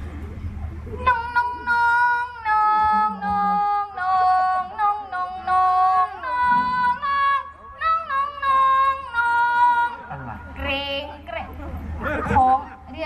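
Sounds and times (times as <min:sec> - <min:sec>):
person singing into microphone: 0:01.0 - 0:10.0.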